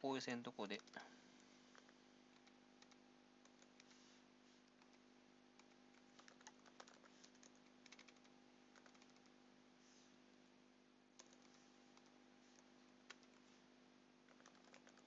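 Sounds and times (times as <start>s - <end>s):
faint steady hum: 0.0s - 15.0s
soft keyboard typing: 0.6s - 1.1s, 1.7s - 4.0s, 4.7s - 9.4s, 11.2s - 13.6s, 14.2s - 15.0s.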